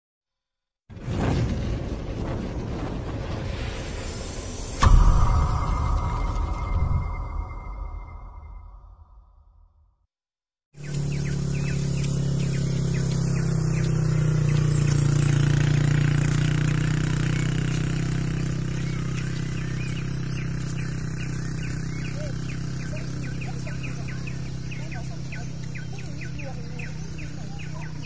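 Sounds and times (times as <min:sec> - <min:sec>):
bird chirps: 0:10.8 - 0:16.0, 0:17.1 - 0:28.0
low motor hum: 0:10.8 - 0:28.0.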